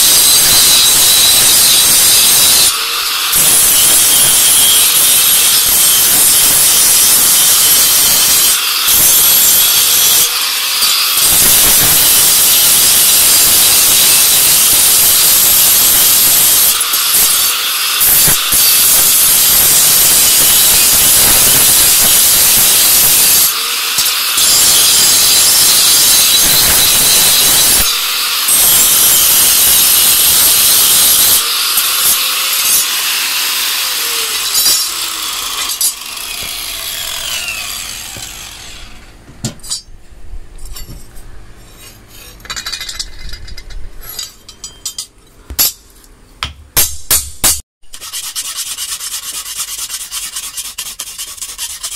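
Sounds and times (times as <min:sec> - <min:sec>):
angle grinder grinding steel: 0:00.0 - 0:39.9.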